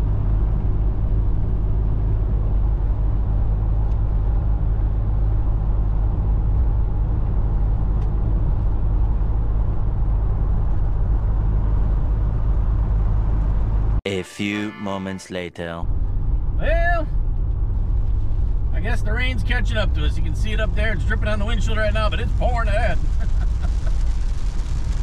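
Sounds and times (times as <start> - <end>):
car cabin engine and road rumble: 16.0 - 25.0.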